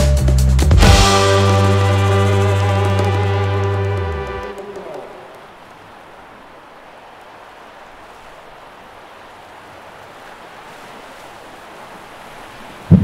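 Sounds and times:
sea water lapping: 1.1 - 13.0.

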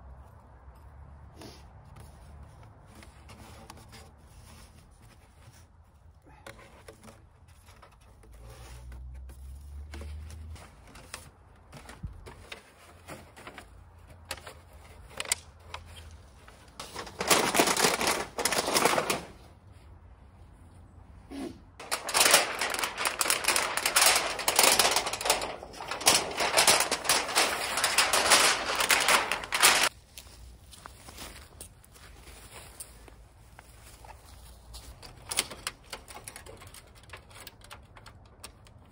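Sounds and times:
metal scraping and rattling: 21.8 - 29.9.

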